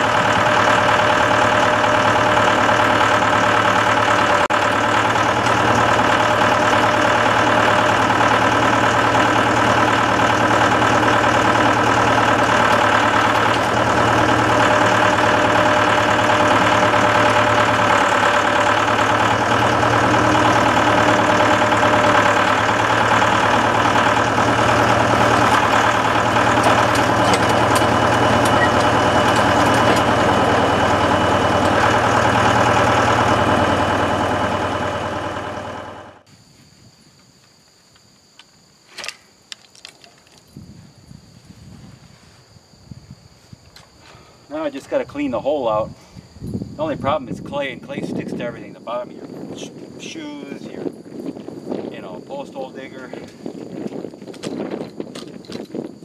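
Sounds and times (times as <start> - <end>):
tractor engine under load: 0.0 - 36.3, 46.7 - 56.0.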